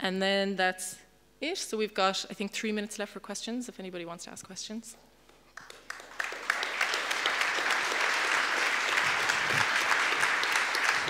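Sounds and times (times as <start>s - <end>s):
audience applauding: 5.6s - 11.0s.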